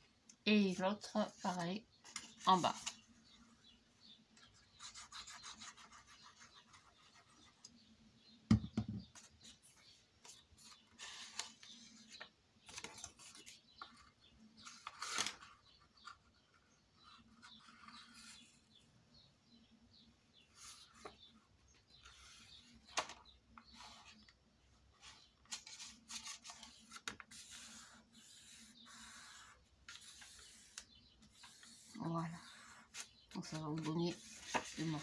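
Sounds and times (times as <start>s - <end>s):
knock on table: 8.5s - 9.1s
card stock rustling on table: 32.9s - 35.0s.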